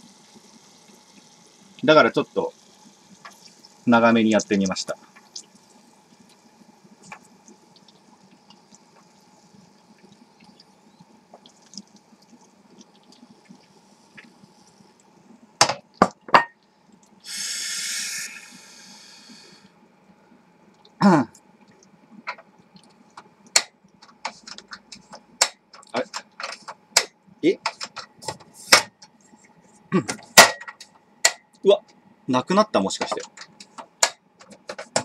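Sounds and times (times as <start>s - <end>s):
oil sizzling in a frying pan: 0.0s - 15.0s
loud hiss: 17.2s - 19.8s.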